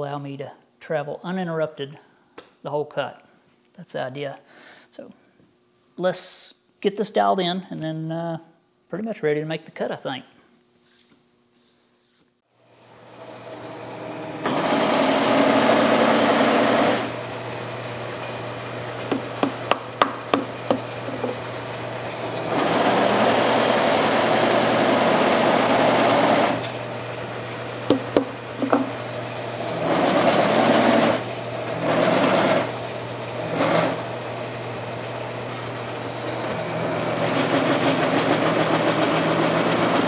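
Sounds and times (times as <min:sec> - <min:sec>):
milling machine humming: 0:12.7 - 0:40.0
saw cutting plastic plate: 0:13.2 - 0:17.3, 0:18.9 - 0:40.0.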